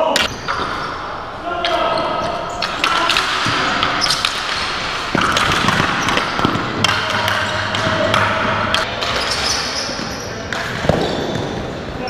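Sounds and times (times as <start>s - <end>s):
hockey sticks clacking: 0.1s - 11.7s
plastic ball striking concrete floor: 2.6s - 9.2s.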